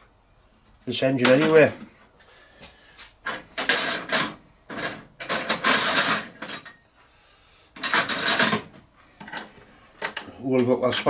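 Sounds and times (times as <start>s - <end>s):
spanners clinking and scraping on nuts: 3.3s - 6.8s, 7.8s - 11.0s.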